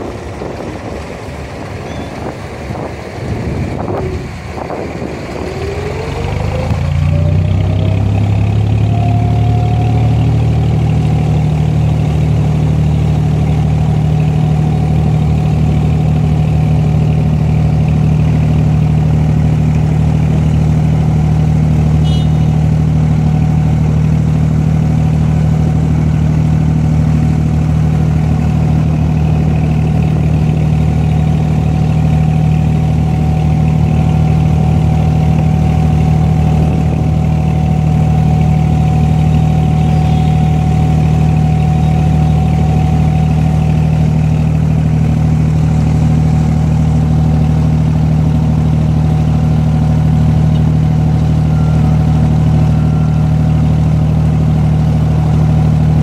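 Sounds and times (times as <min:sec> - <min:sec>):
boat engine running: 0:00.0 - 0:56.0
water rushing along hull: 0:00.0 - 0:56.0
faint high chirp: 0:01.8 - 0:02.2, 0:39.7 - 0:40.6, 0:50.5 - 0:53.5.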